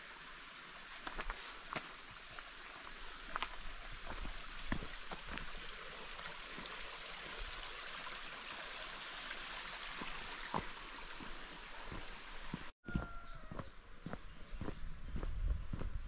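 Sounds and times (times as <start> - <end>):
running water: 0.0 - 12.7
soft footsteps: 10.0 - 16.0.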